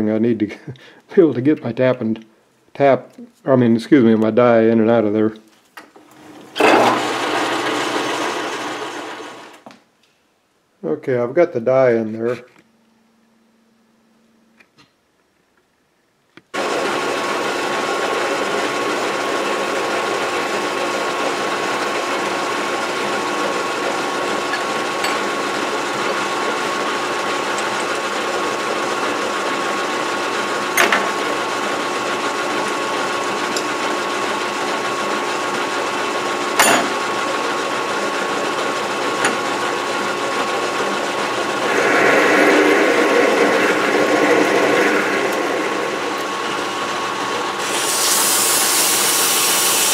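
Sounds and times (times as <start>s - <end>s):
metal lathe humming: 6.0s - 9.6s, 16.6s - 49.9s
drill cutting metal: 6.5s - 9.6s, 16.6s - 49.9s.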